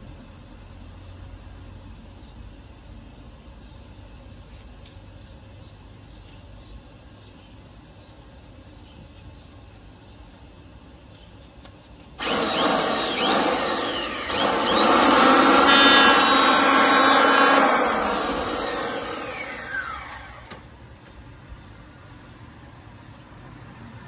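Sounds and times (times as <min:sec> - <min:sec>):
electric planer motor whine: 0:12.2 - 0:20.6
planer blade cutting wood: 0:12.2 - 0:20.6.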